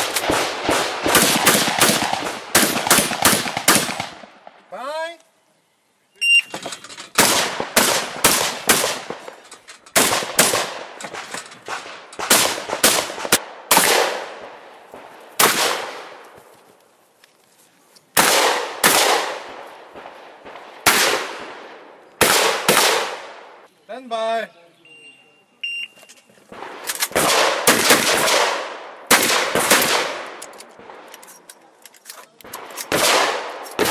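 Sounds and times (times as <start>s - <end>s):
shotgun shots ringing: 0.0s - 4.5s, 7.2s - 9.4s, 10.0s - 16.2s, 18.2s - 23.6s, 26.5s - 31.1s, 32.5s - 33.9s.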